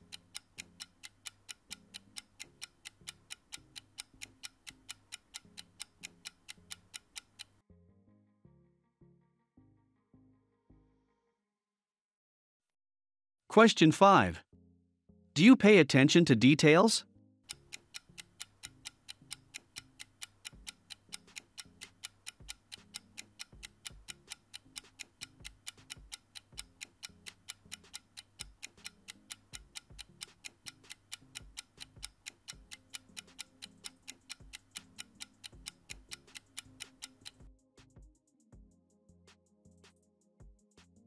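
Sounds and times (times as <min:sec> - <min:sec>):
clock ticking: 0:00.0 - 0:07.6, 0:17.5 - 0:37.5
soft background music: 0:15.4 - 0:41.0.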